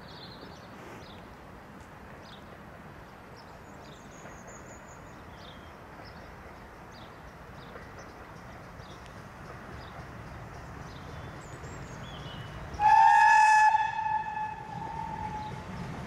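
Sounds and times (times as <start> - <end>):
small birds chirping: 2.2 - 12.8.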